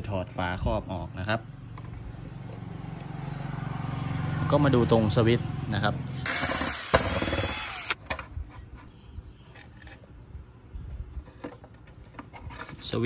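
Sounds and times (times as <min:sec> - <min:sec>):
electric screwdriver motor whining: 0:06.2 - 0:08.0.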